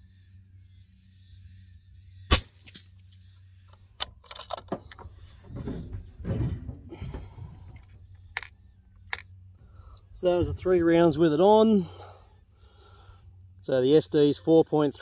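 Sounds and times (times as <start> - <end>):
suppressed rifle shot: 2.3 - 2.8
metallic clicks: 3.7 - 5.0.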